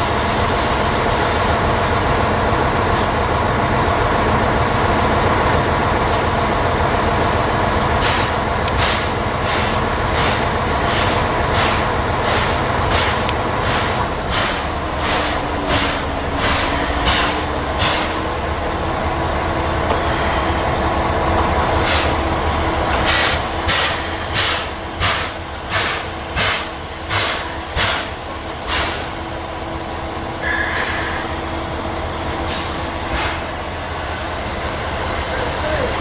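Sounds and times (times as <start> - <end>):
steam locomotive exhaust chuffing: 0.0 - 36.0
steam hissing: 8.0 - 18.3, 20.0 - 20.8, 21.8 - 22.2, 23.0 - 29.2, 30.4 - 31.6, 32.4 - 36.0.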